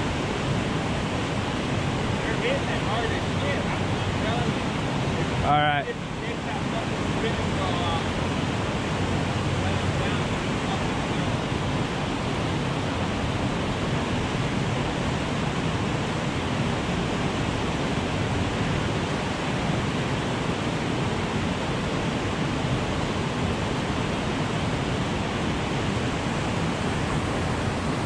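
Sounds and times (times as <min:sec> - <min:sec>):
white water rushing from spillway: 0:00.0 - 0:28.0.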